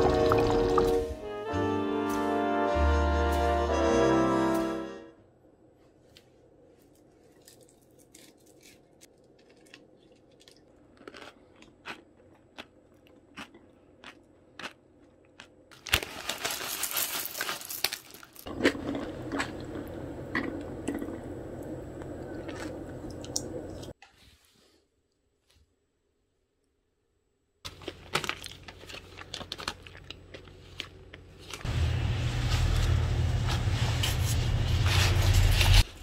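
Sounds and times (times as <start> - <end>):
scraping and crunching: 15.7 - 19.9, 27.7 - 36.0.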